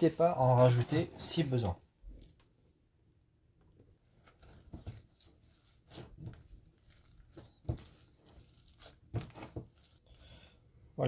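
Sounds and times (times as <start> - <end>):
hand squishing dough: 4.2 - 10.6.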